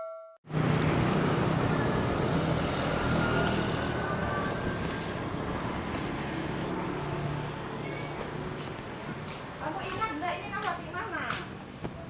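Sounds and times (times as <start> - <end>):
notification bell ding: 0.0 - 0.4
street traffic noise: 0.5 - 12.0.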